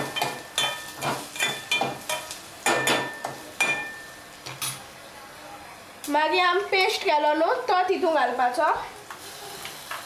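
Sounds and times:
metal spoon clinking against pot: 0.2s - 4.0s.

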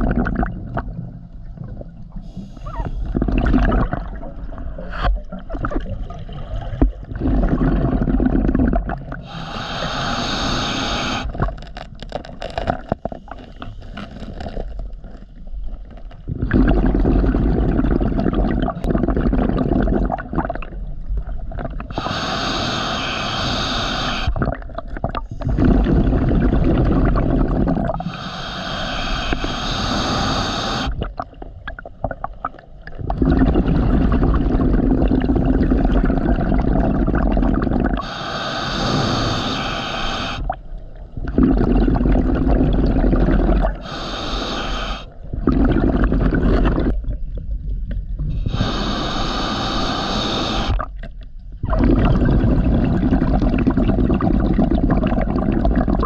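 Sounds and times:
exhaled bubbles burbling: 0.0s - 56.0s
regulator inhale hiss: 2.2s - 3.1s, 9.2s - 11.3s, 21.9s - 24.4s, 28.0s - 31.0s, 38.0s - 40.5s, 43.8s - 45.2s, 48.2s - 50.8s.

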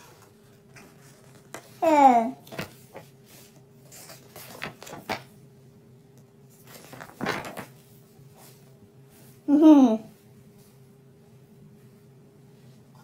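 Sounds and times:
paper rustling: 0.0s - 5.4s, 6.5s - 8.6s
page turning swish: 6.6s - 7.8s.

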